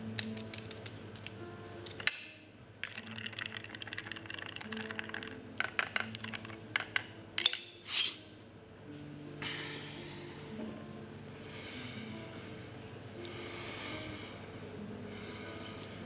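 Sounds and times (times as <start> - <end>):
slow background music: 0.0 - 16.0
clinks of small hard objects: 0.3 - 7.6.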